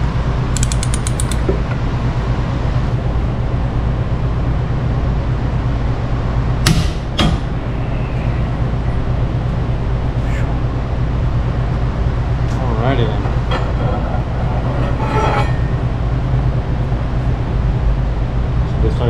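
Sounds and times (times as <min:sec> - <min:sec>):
steady low hum: 0:00.0 - 0:19.0
torque wrench ratchet clicking: 0:00.6 - 0:01.4
torque wrench sharp clicks: 0:00.6 - 0:01.5.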